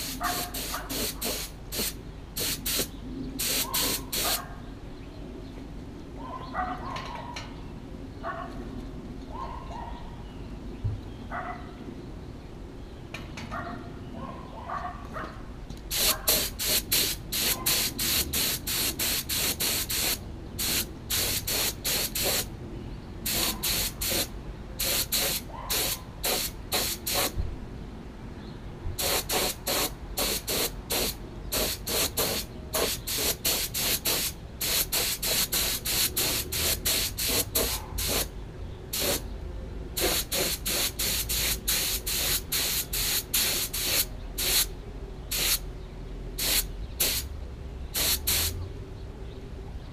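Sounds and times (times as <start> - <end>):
paint spray gun hissing: 0.0 - 4.4, 15.9 - 22.5, 23.3 - 27.4, 29.0 - 38.3, 39.0 - 39.2, 40.0 - 44.7, 45.3 - 45.6, 46.4 - 47.3, 48.0 - 48.5.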